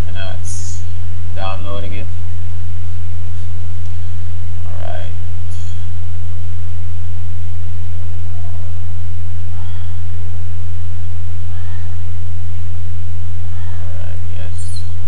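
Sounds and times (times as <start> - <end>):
electrical hum: 0.0 - 15.0.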